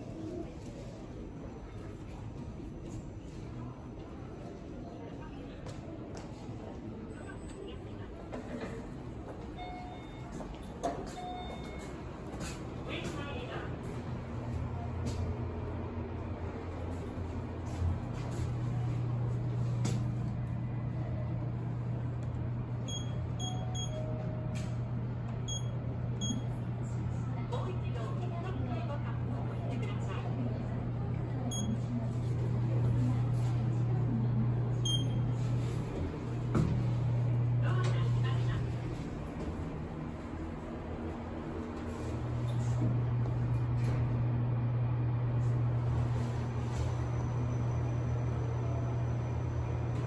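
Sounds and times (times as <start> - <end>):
elevator button beeps: 9.5 - 12.1, 22.8 - 24.8, 25.4 - 26.5, 31.5 - 31.8, 34.8 - 35.4
steady low hum: 11.2 - 50.0.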